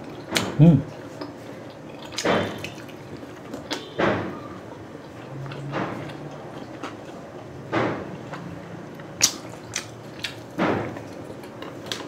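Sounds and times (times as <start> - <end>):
biting and chewing: 4.8 - 12.0.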